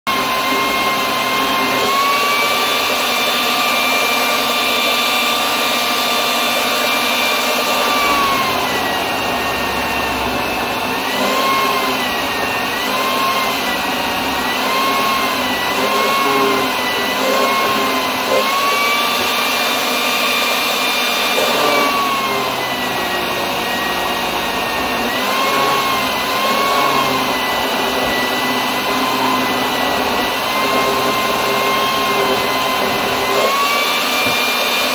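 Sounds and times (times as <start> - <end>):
citrus juicer motor whine: 0.1 - 34.9.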